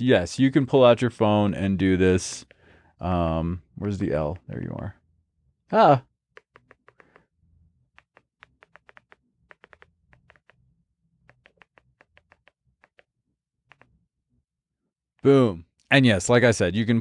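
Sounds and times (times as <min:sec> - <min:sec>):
remote control buttons clicking: 0:06.4 - 0:07.2, 0:08.0 - 0:10.6, 0:11.2 - 0:13.1, 0:13.7 - 0:13.9.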